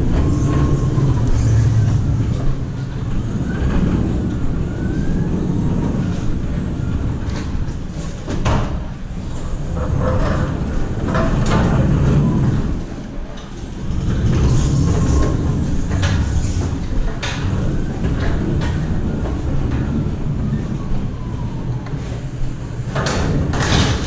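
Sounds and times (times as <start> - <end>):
wheels rumbling on metal floor: 0.0 - 24.0
rattles and knocks: 22.8 - 24.0.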